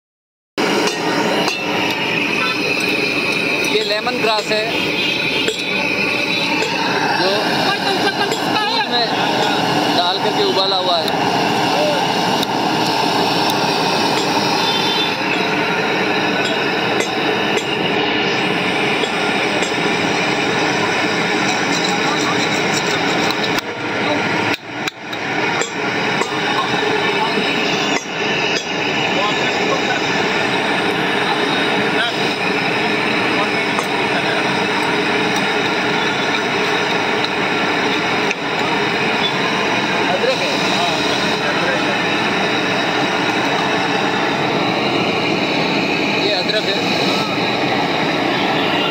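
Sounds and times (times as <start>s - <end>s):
gas burner rushing: 0.6s - 48.9s.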